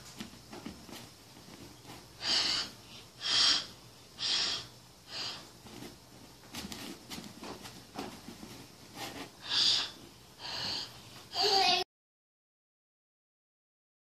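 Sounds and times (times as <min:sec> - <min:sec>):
child blowing breathy puffs: 0:02.1 - 0:05.7, 0:09.4 - 0:11.6.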